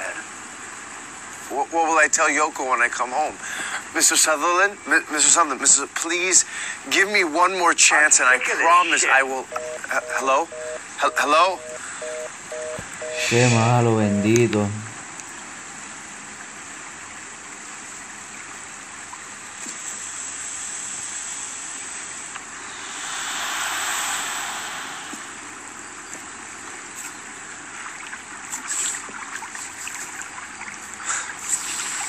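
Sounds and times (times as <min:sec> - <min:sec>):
rushing outdoor noise: 0:22.5 - 0:26.3.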